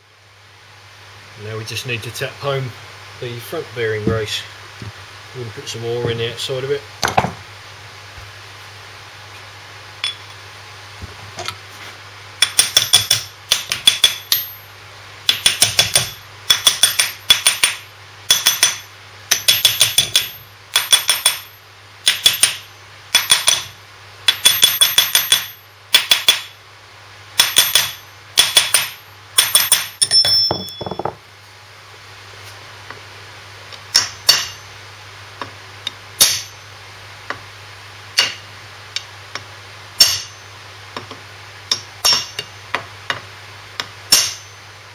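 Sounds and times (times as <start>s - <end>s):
hammer tapping metal: 12.4s - 14.6s, 15.3s - 21.5s, 22.1s - 23.7s, 24.3s - 26.5s, 27.4s - 31.2s, 33.9s - 34.7s, 36.2s - 36.6s, 38.2s - 40.4s, 41.0s - 43.2s, 43.8s - 44.5s.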